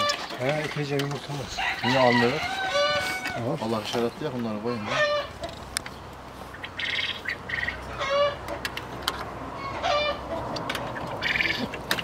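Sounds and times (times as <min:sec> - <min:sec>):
poultry calling: 0:00.0 - 0:03.8, 0:04.7 - 0:05.6, 0:06.4 - 0:08.6, 0:09.6 - 0:11.8.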